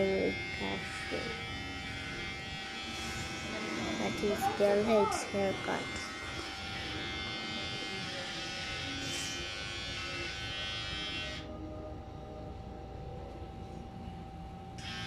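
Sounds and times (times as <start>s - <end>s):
electric hair clippers buzzing: 0.0s - 11.5s, 14.8s - 15.0s.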